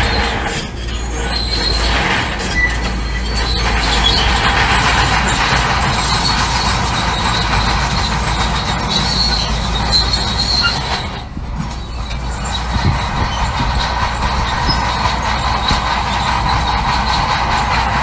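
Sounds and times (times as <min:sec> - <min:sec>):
bulldozer diesel engine running: 0:00.0 - 0:18.0
steel tracks squealing and clanking: 0:00.0 - 0:18.0.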